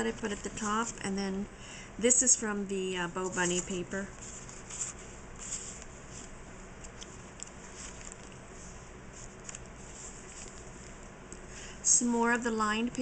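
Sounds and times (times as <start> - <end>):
paper rustling: 3.2 - 11.0.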